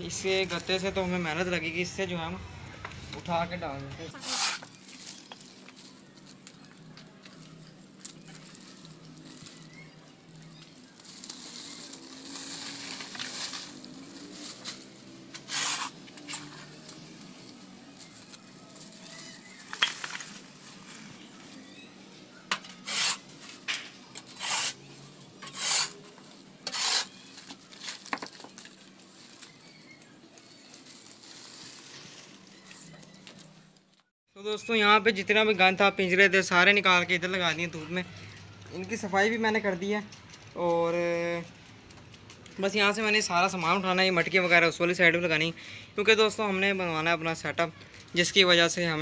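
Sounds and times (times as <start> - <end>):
plastic bag rustling: 4.1 - 34.1
sharp plastic crackles: 4.1 - 34.1.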